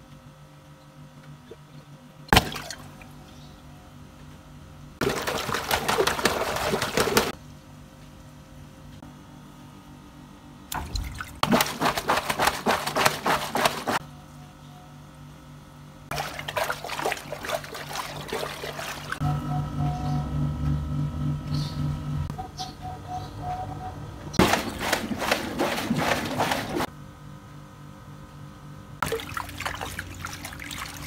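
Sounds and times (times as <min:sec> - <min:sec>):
low pulsing hum: 0:00.0 - 0:31.0
water-filled rubber toy squelching: 0:11.0 - 0:14.0, 0:16.1 - 0:19.2, 0:24.4 - 0:26.9, 0:29.0 - 0:31.0.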